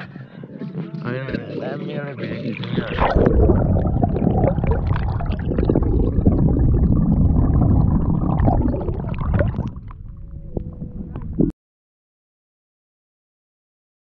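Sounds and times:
water splashing and rushing: 0:02.6 - 0:10.2.

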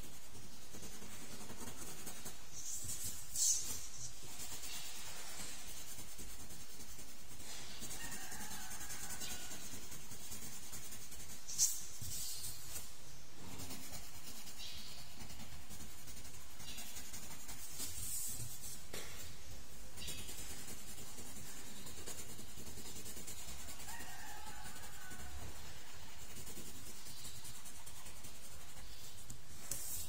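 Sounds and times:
pencil scratching on paper: 0:00.0 - 0:19.1, 0:19.8 - 0:30.0
steady hiss: 0:02.0 - 0:08.1.

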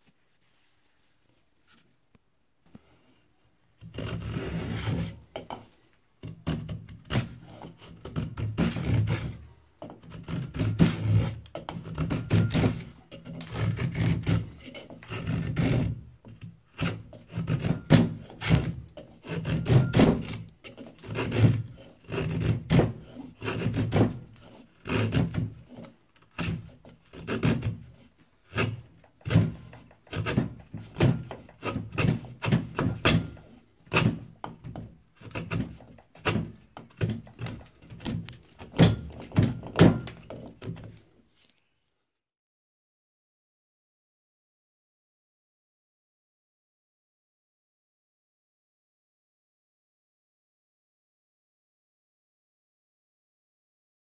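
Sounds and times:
draw knife shaving wood: 0:03.8 - 0:41.6.

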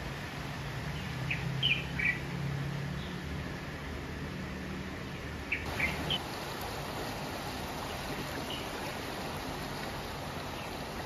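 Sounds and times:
running water hiss: 0:00.0 - 0:11.0
bird chirps: 0:05.5 - 0:06.2.

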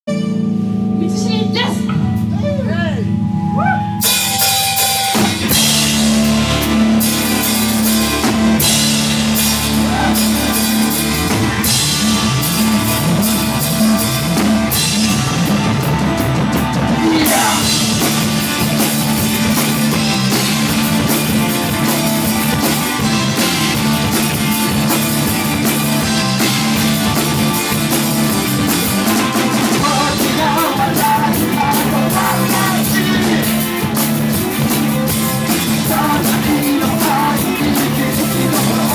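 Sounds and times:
live rock band playing: 0:00.1 - 0:38.9
woman singing: 0:29.8 - 0:33.6.

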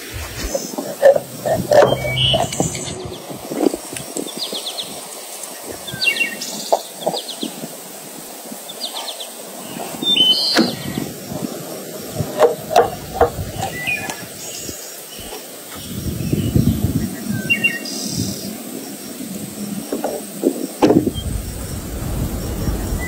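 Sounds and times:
small birds chirping: 0:00.0 - 0:03.6.

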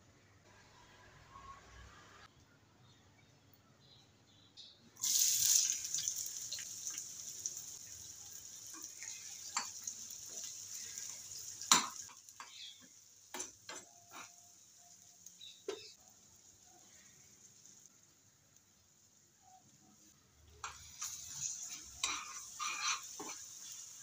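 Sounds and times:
onions sizzling in frying pan: 0:05.0 - 0:24.0.

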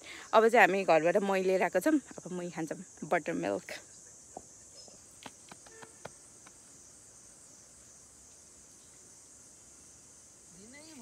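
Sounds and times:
high-pitched insect drone: 0:02.4 - 0:11.0.

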